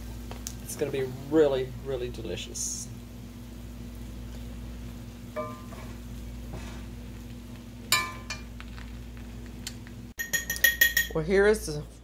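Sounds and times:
spoon clinking against pot: 7.9s - 8.5s, 10.2s - 11.2s.

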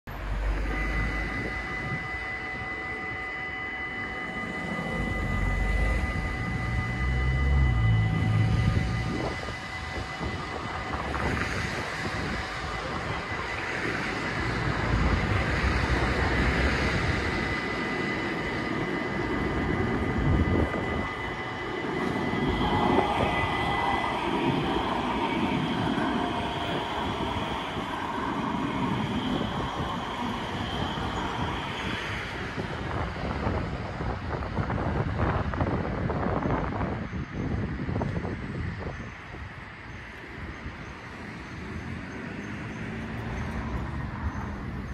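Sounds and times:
crossing warning tone: 0.1s - 44.9s
train wheels rumbling on rails: 0.1s - 44.9s
electric motor whine: 0.2s - 33.6s.

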